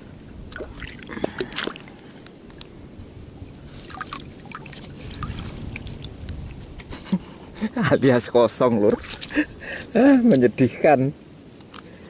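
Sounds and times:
water trickling and dripping: 0.5s - 2.7s, 3.3s - 6.9s.

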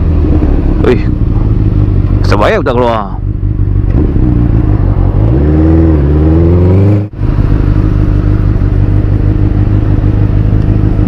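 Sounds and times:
motorcycle engine idling: 0.0s - 5.2s, 7.1s - 11.0s
motorcycle engine running: 0.0s - 11.0s.

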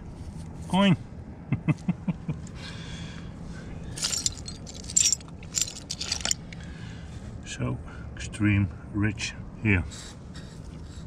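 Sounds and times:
small metal objects jingling: 3.9s - 6.6s.

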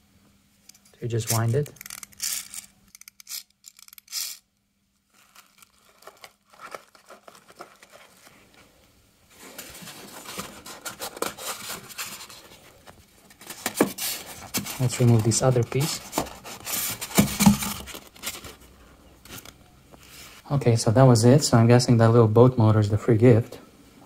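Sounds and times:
foam packing scraping and rustling: 5.1s - 8.5s, 9.3s - 18.7s.

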